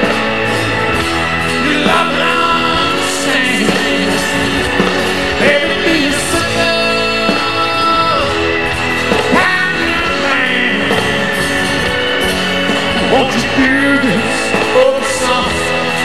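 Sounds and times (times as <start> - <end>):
drums: 0.0 - 16.0
man singing: 1.5 - 11.7, 12.7 - 16.0.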